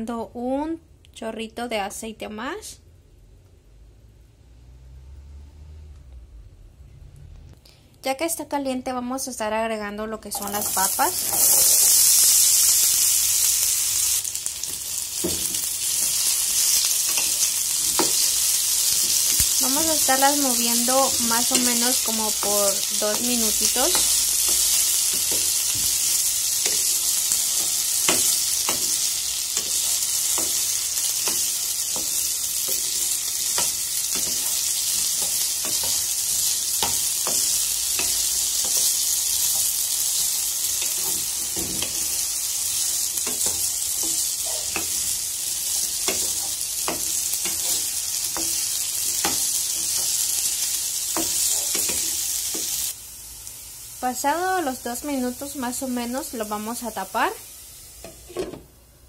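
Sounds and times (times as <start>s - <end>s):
potatoes sizzling in hot oil: 10.3s - 58.4s.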